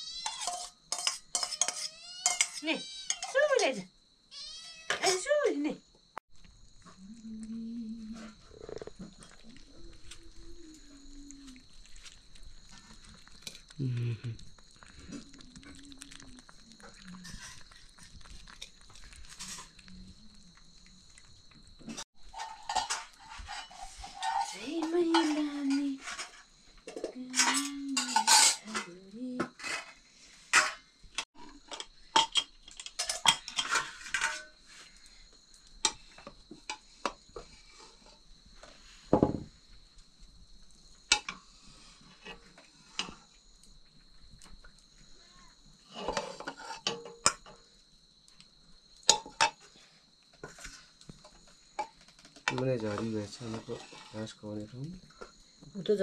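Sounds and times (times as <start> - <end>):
dishes and utensils clinking: 0.2 - 3.5, 21.9 - 29.9, 30.5 - 30.8, 31.4 - 34.6, 45.9 - 47.6.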